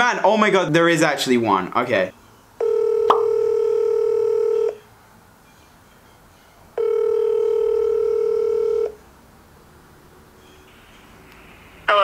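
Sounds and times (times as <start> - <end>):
phone ringing tone: 2.6 - 4.8, 6.8 - 9.0.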